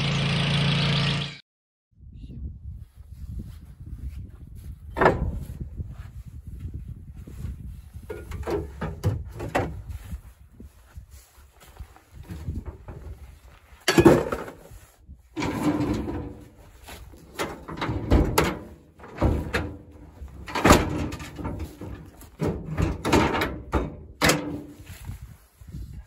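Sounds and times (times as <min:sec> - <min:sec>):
metal tools clanking: 0:13.8 - 0:14.7, 0:15.4 - 0:16.6, 0:17.2 - 0:24.7
tailgate slamming shut: 0:17.4 - 0:24.6.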